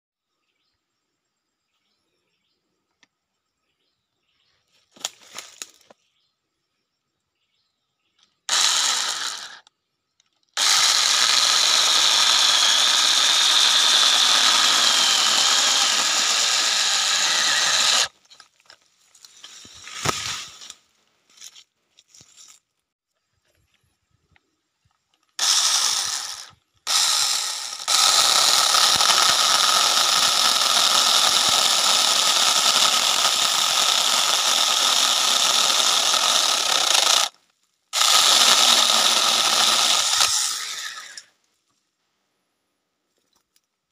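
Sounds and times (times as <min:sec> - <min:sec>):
mini chainsaw cutting wood: 0:08.4 - 0:09.7, 0:10.6 - 0:18.2, 0:19.7 - 0:20.7, 0:25.4 - 0:41.4.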